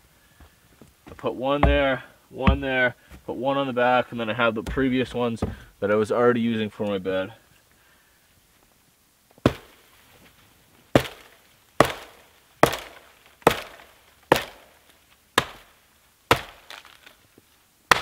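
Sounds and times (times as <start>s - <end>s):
axe chopping wood: 1.6s - 2.8s, 4.6s - 5.7s, 9.4s - 9.7s, 11.0s - 14.7s, 15.4s - 15.7s, 16.3s - 17.0s.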